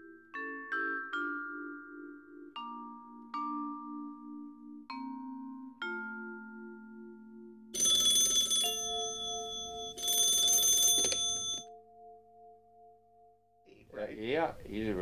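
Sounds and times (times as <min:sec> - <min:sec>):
bell ringing: 0:07.8 - 0:11.7.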